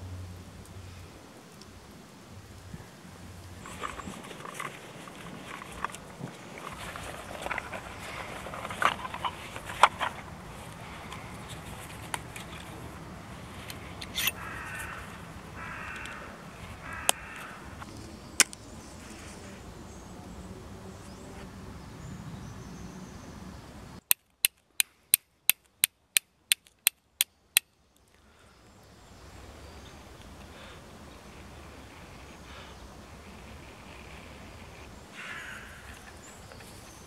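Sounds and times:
bird calling: 3.6s - 12.8s, 13.8s - 17.8s
fire striker clicking on flint: 24.1s - 27.0s.

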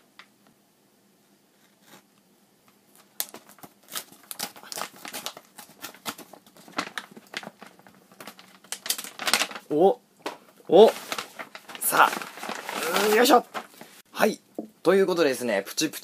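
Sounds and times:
mailer bag crinkling and tearing: 3.0s - 9.7s, 10.8s - 14.0s.

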